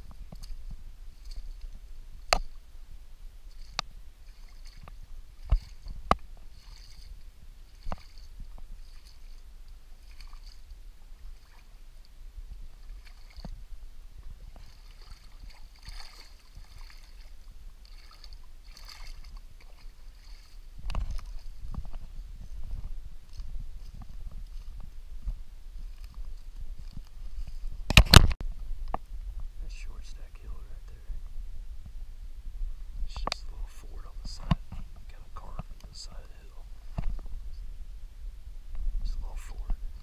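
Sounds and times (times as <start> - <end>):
boots sloshing through mud: 3.5 - 11.9, 12.6 - 28.3.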